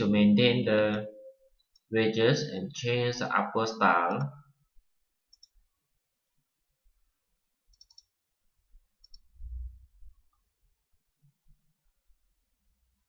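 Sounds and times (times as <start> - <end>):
computer mouse clicks: 5.3 - 5.6, 7.7 - 8.2, 9.0 - 9.3.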